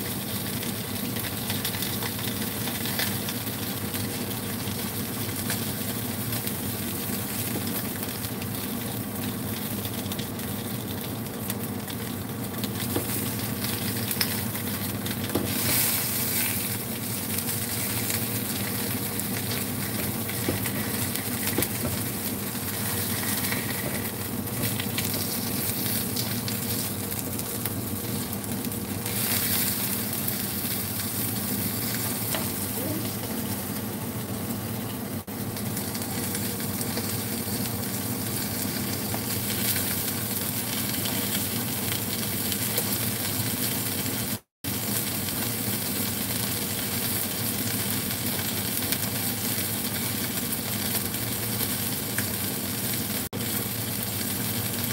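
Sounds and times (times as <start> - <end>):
fish sizzling in a pan: 0.0 - 54.9.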